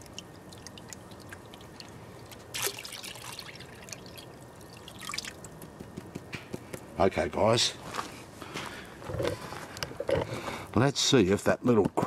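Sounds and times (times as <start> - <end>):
water trickling and dripping: 0.0 - 5.7
water splash: 2.5 - 3.9.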